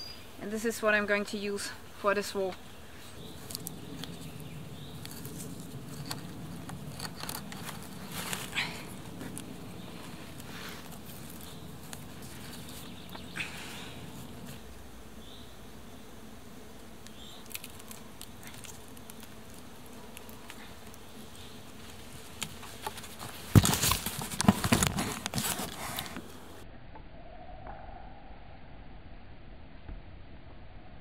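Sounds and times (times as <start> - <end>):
cord rustling on wooden poles: 1.6 - 14.9, 17.0 - 26.6
crashing in dry leaves and sticks: 17.2 - 26.3.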